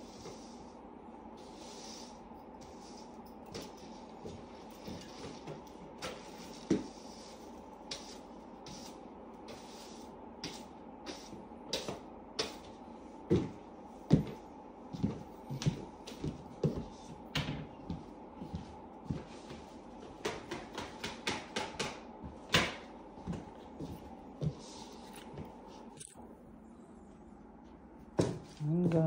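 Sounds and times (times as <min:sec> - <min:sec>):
broom sweeping floor: 0:00.0 - 0:21.0, 0:23.2 - 0:26.1
footsteps: 0:23.2 - 0:26.2.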